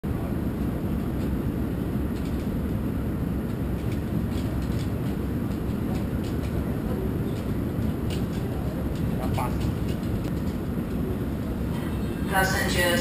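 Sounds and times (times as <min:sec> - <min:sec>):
low terminal rumble: 0:00.0 - 0:13.0
luggage trolleys rattling on tiles: 0:03.4 - 0:10.7.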